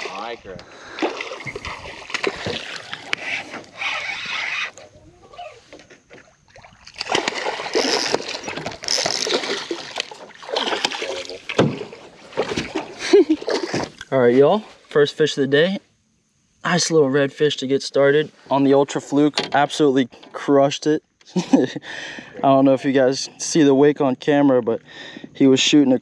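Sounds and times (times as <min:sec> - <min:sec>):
water splashing around boat: 0:00.0 - 0:04.8, 0:05.7 - 0:14.0.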